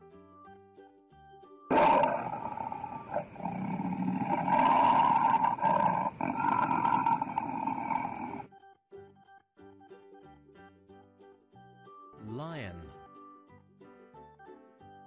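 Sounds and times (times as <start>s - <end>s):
tiger roaring: 1.7s - 8.5s.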